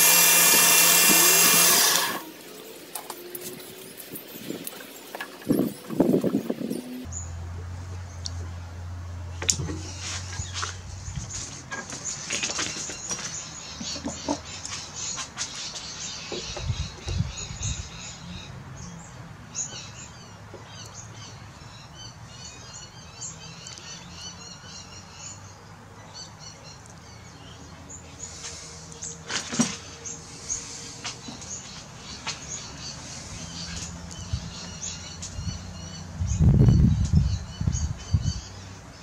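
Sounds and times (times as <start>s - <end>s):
small birds chirping: 9.8s - 39.0s.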